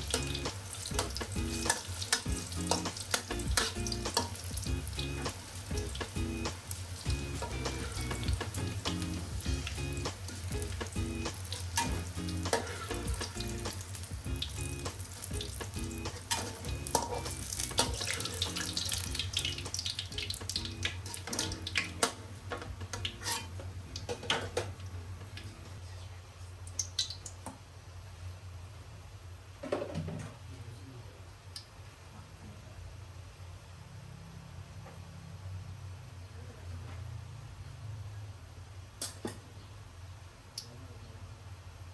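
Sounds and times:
eggplant sizzling in hot oil: 0.0 - 25.4
metal spatula scraping a wok: 7.3 - 8.6, 10.3 - 14.0, 15.9 - 19.1, 21.0 - 22.2, 22.9 - 23.6.

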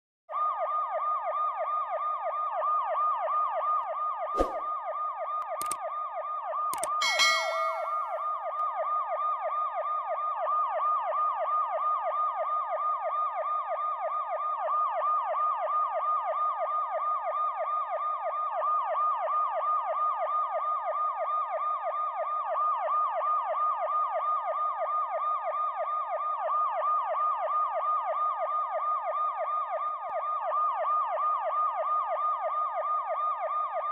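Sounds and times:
police siren yelping: 0.3 - 33.9
sharp clicks: 5.6 - 5.8, 6.7 - 7.0
brief ringing tone: 7.0 - 8.2.

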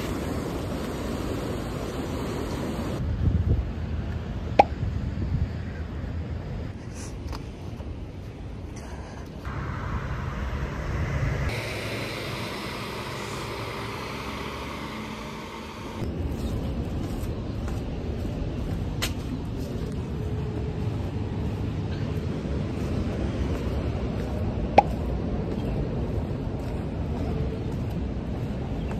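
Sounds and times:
passing cars rumble: 9.5 - 28.9.

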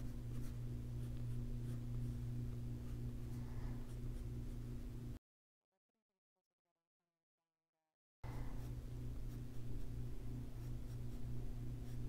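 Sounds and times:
pencil scratching on paper: 0.0 - 4.8, 8.3 - 12.0
steady low hum: 0.0 - 5.2, 8.2 - 12.0.

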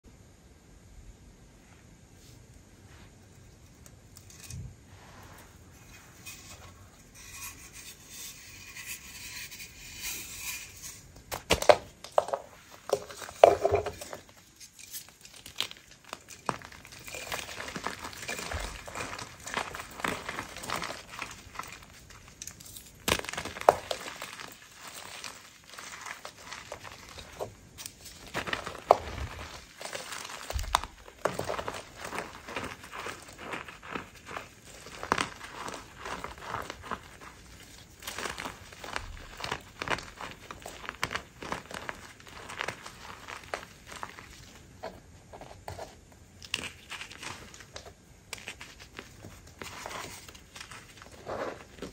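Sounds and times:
chalk crunching and crumbling in hands: 12.1 - 51.9.

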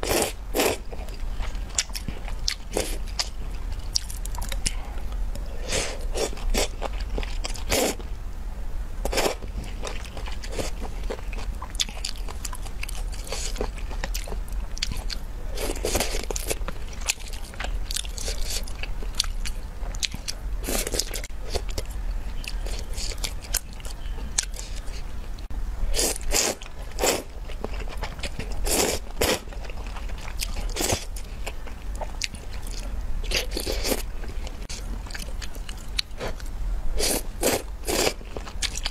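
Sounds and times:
wet chewing: 0.0 - 8.1, 9.1 - 38.9.

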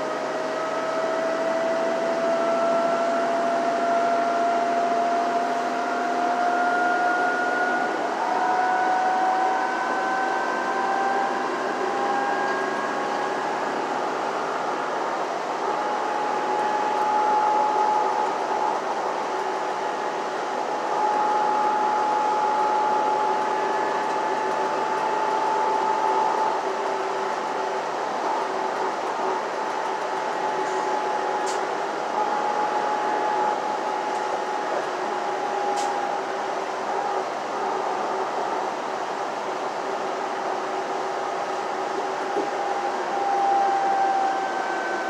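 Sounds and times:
bus engine and road noise: 0.0 - 45.0.

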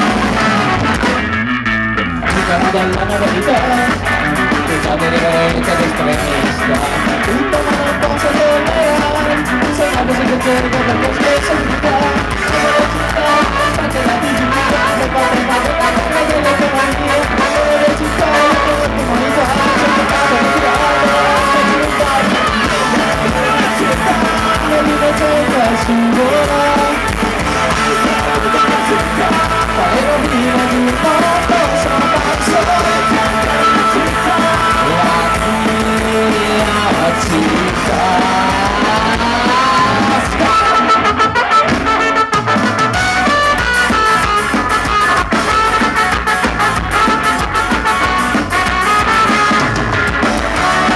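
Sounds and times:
trumpet: 0.0 - 1.5, 2.3 - 50.9
ska-punk band playing live: 0.0 - 50.9
person singing: 2.3 - 42.3.

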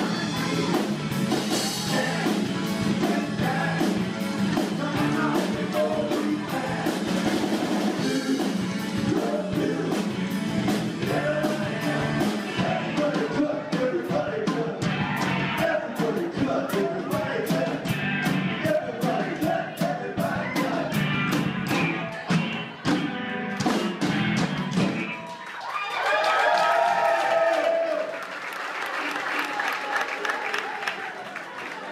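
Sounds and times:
live rock band playing: 0.0 - 25.4
lead singer: 1.5 - 21.4.

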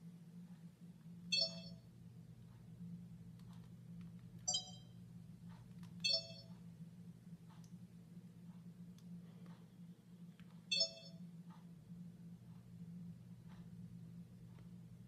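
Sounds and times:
steady low hum: 0.0 - 15.0
camcorder electronic beeps: 1.3 - 1.8, 4.5 - 4.9, 6.0 - 6.5, 10.7 - 11.2.

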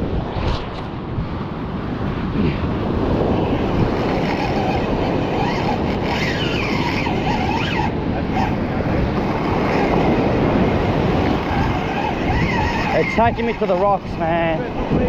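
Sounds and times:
surf washing over rocks: 0.0 - 15.0
wind buffeting microphone: 0.0 - 15.0.

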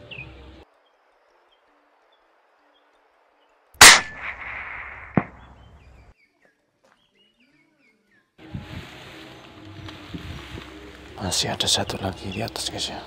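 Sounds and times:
rifle shot: 3.8 - 5.9
sharp crack: 3.8 - 6.1
rustling noise: 8.4 - 11.2.

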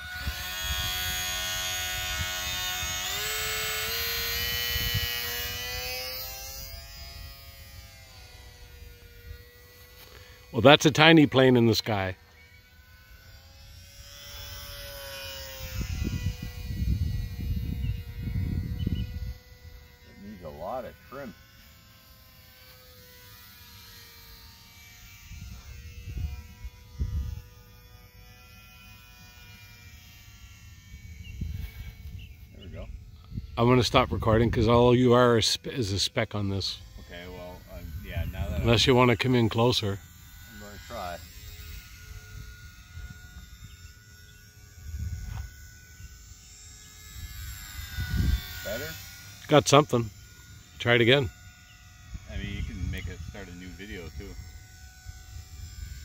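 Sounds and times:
model plane motor whining: 0.0 - 56.0
wind gusts rumbling on microphone: 15.7 - 19.4.

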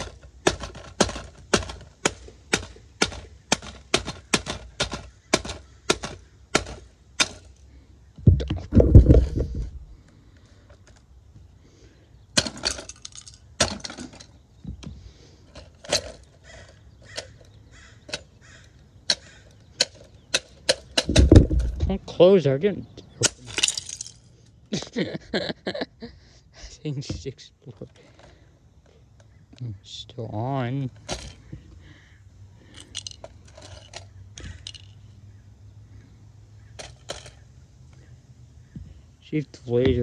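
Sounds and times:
low clatter of handled player: 8.2 - 11.1, 12.4 - 18.3, 19.8 - 22.0.

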